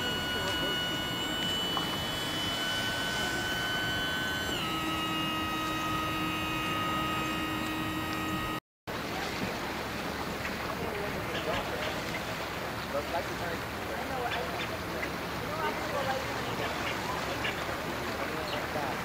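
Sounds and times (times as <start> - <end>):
motor whining: 0.0 - 8.6.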